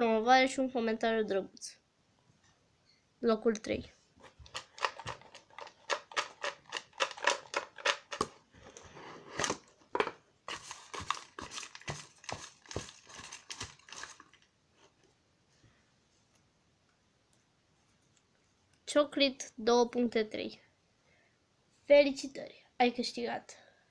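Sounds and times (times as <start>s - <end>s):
paper slips rustling in a box: 10.5s - 14.4s.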